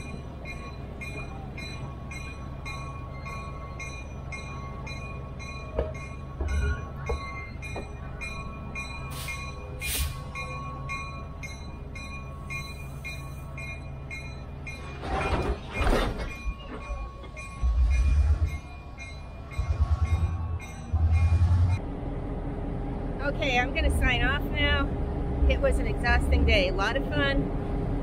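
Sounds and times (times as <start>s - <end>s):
steam locomotive hum: 0.0s - 28.0s
low rumbles: 15.1s - 28.0s.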